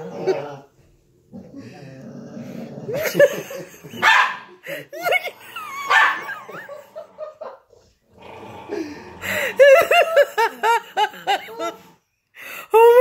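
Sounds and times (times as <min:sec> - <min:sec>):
person laughing: 0:02.9 - 0:07.6, 0:08.8 - 0:11.8.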